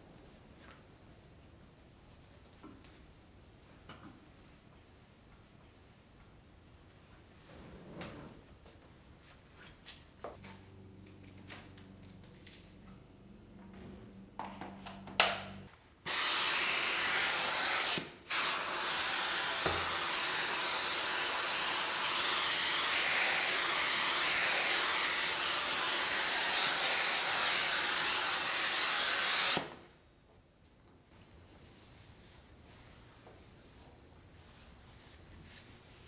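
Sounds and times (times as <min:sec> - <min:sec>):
steam cleaner hissing: 0:16.1 - 0:29.8.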